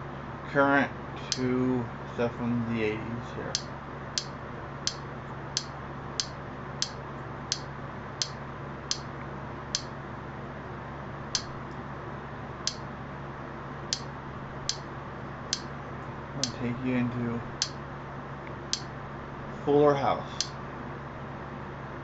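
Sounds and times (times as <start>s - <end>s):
steady low hum: 0.0s - 22.0s
sharp clicks: 3.6s - 5.0s, 5.6s - 9.1s, 11.3s - 11.6s.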